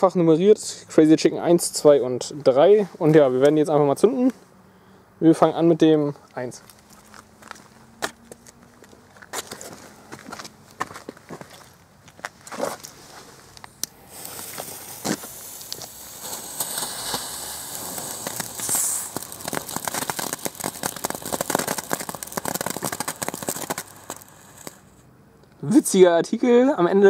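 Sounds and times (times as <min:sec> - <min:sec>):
firework fountain hissing and crackling: 0:13.6 - 0:25.0.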